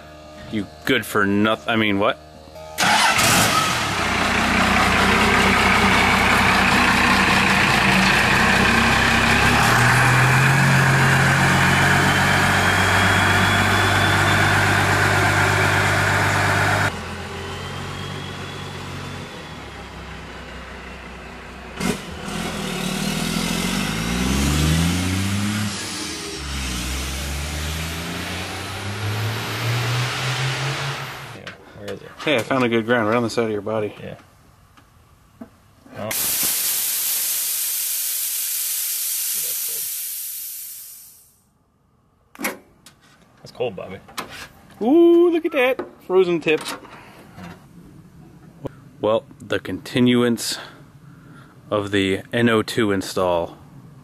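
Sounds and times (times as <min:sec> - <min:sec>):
pickup truck driving past: 0:02.8 - 0:31.4
pickup truck engine revving: 0:02.8 - 0:31.4.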